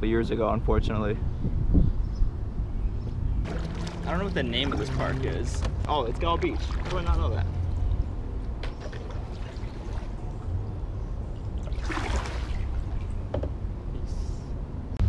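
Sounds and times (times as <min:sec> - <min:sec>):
low steady rumble: 0:00.0 - 0:15.0
paddle splashing in water: 0:03.4 - 0:07.4, 0:08.6 - 0:10.2, 0:11.6 - 0:13.2
water trickling off paddle: 0:03.4 - 0:07.4.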